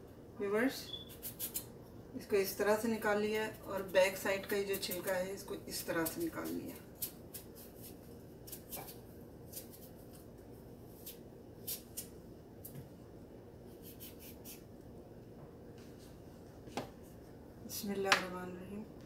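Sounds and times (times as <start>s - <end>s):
knife scraping papaya skin: 0.9s - 1.7s, 5.9s - 10.2s, 10.9s - 12.1s, 13.7s - 14.6s.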